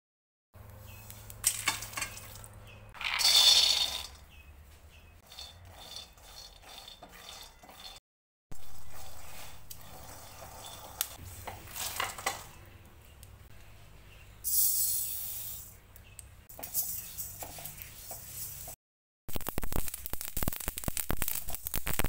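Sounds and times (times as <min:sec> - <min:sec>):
spatula scraping peanuts in wok: 0:03.0 - 0:04.3, 0:05.0 - 0:08.0, 0:08.6 - 0:12.6, 0:16.5 - 0:18.8
seeds poured into wok: 0:19.3 - 0:22.0.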